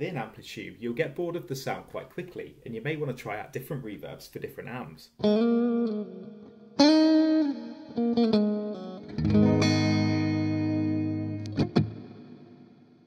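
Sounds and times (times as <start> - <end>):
electric guitar with reverb: 5.2 - 13.0.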